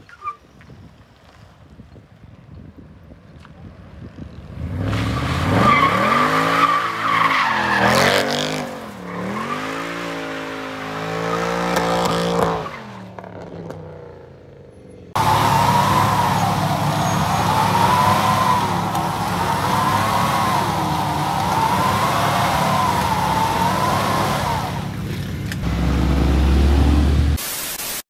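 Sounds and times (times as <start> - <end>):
car engine revving hard: 4.6 - 12.8, 15.2 - 24.9, 25.6 - 27.4
tyres squealing and spinning: 5.0 - 13.0, 15.2 - 25.0.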